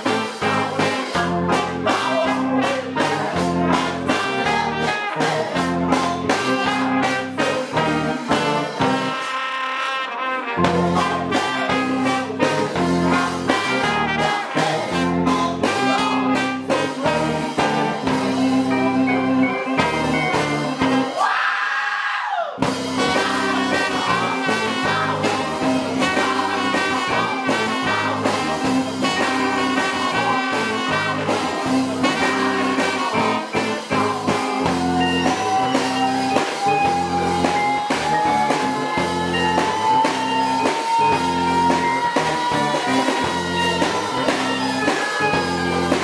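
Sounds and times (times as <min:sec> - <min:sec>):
funk band with trumpet: 0:00.0 - 0:21.5, 0:22.6 - 0:46.0
held note rising in pitch: 0:33.9 - 0:46.0.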